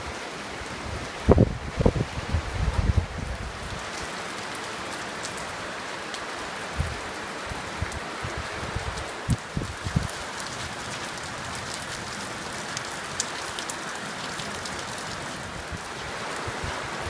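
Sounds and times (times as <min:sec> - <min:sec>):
heavy rain: 0:00.0 - 0:17.0
raindrops ticking: 0:04.0 - 0:05.5, 0:08.9 - 0:16.0.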